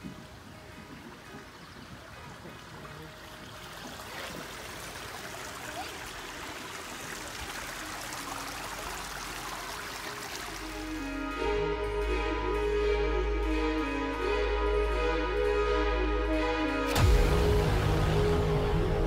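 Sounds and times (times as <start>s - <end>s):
water splashing over rocks: 0.0s - 11.0s.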